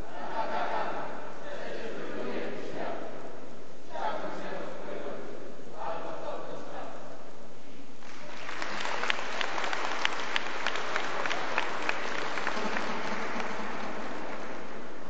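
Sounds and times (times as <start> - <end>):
audience applause: 8.0 - 15.0.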